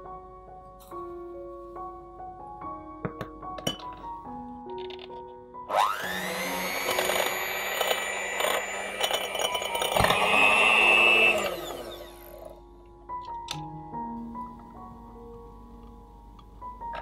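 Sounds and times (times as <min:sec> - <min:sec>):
electric hand mixer whining: 0:05.7 - 0:12.6.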